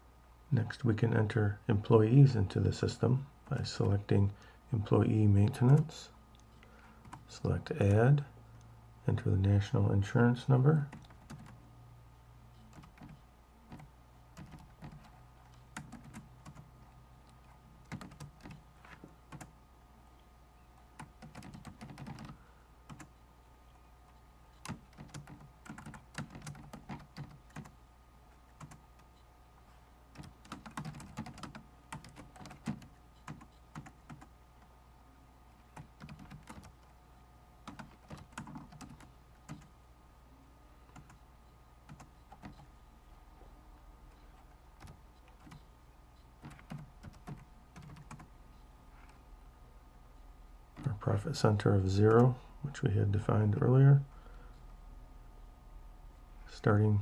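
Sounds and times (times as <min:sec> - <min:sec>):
faint low hum: 0:00.0 - 0:57.0
keyboard typing: 0:07.0 - 0:07.3, 0:10.9 - 0:11.6, 0:12.6 - 0:18.6, 0:19.3 - 0:19.5, 0:21.0 - 0:23.1, 0:24.6 - 0:27.8, 0:28.5 - 0:29.1, 0:30.1 - 0:34.3, 0:35.7 - 0:36.9, 0:37.6 - 0:39.7, 0:40.9 - 0:41.2, 0:41.8 - 0:42.7, 0:44.1 - 0:45.7, 0:46.4 - 0:48.3.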